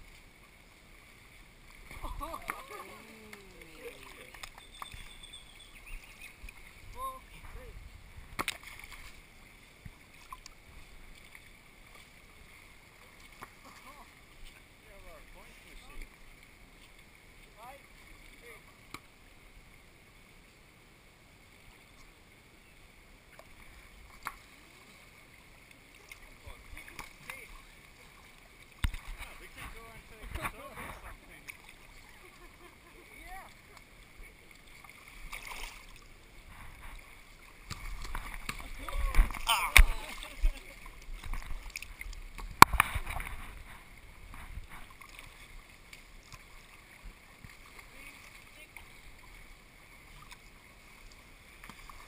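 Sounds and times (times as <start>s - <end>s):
pool water lapping: 0.0s - 52.0s
sharp water slap: 1.8s - 3.7s, 8.3s - 9.0s
light slaps and splashes: 1.8s - 4.9s, 8.3s - 9.2s, 26.0s - 27.6s, 28.7s - 31.8s, 34.8s - 36.1s, 37.6s - 43.4s.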